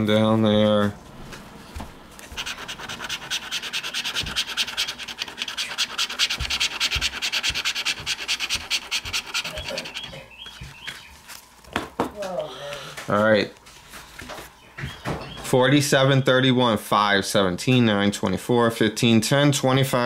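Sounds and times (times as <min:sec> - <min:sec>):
lottery ticket being scratched: 0:02.3 - 0:10.4.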